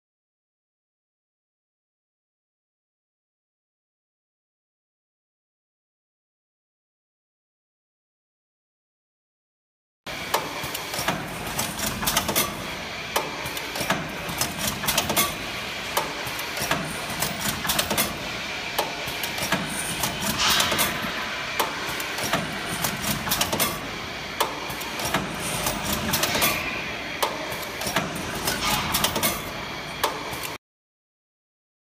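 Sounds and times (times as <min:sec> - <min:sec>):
machine hissing: 0:10.1 - 0:30.6
machine clanking and clicking: 0:10.3 - 0:30.6.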